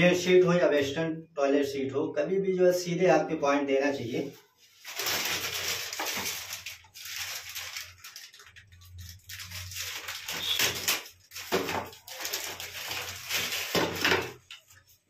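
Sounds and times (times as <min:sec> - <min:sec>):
plastic bag crinkling: 0:04.7 - 0:15.0.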